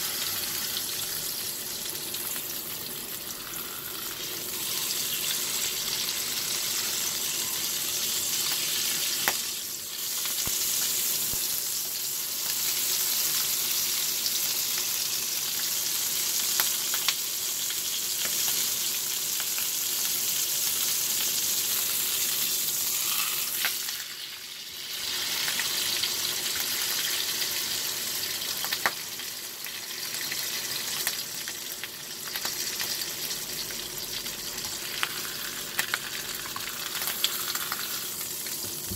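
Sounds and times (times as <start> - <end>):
steak sizzling in a skillet: 0.0 - 38.9.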